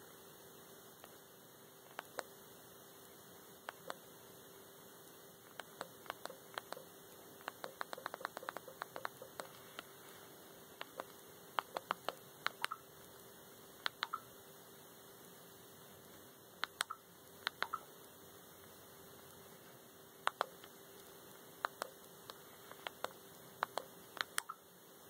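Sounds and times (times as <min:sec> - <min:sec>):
steady hum: 0:00.0 - 0:25.0
sharp menu scrolling clicks: 0:10.8 - 0:12.8, 0:13.9 - 0:14.3, 0:16.6 - 0:17.9, 0:22.9 - 0:24.6.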